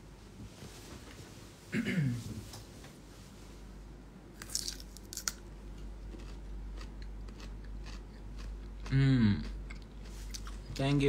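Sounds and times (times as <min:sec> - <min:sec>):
person chewing crunchy food: 0:04.4 - 0:10.8.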